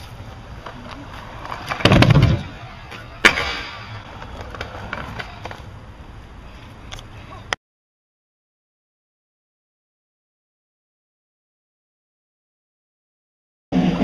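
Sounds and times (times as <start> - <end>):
scooter wheels rolling on asphalt: 0.0 - 7.5.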